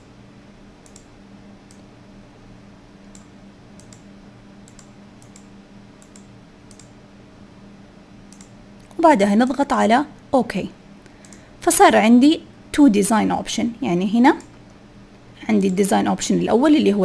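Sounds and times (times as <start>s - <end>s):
computer mouse clicking: 0.8s - 1.1s, 1.7s - 1.9s, 3.1s - 7.0s, 8.3s - 9.0s, 11.0s - 11.4s.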